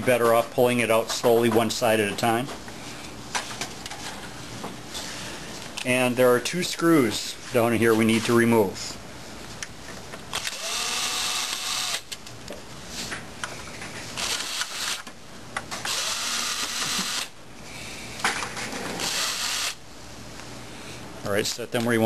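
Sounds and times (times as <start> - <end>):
electric screwdriver whirring: 10.4 - 12.1, 14.2 - 15.1, 15.8 - 17.3, 19.0 - 19.8.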